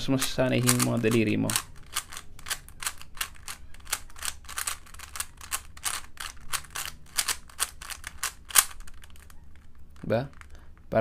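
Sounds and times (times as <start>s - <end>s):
puzzle cube clicking and clacking: 0.0s - 10.9s.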